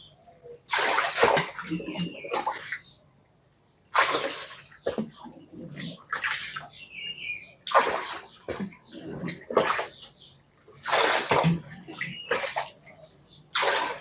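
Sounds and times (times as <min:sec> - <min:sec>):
water splashing in gushes: 0:00.7 - 0:02.9, 0:03.9 - 0:06.8, 0:07.6 - 0:10.1, 0:10.7 - 0:12.9, 0:13.5 - 0:14.0.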